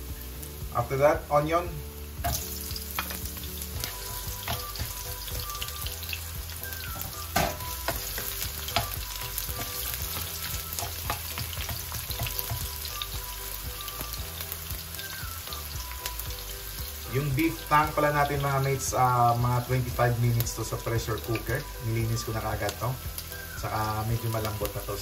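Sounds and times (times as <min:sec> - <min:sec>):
vegetables sizzling in hot oil: 0:00.0 - 0:25.0
spatula scraping and tapping pan: 0:02.2 - 0:05.1, 0:06.9 - 0:12.9.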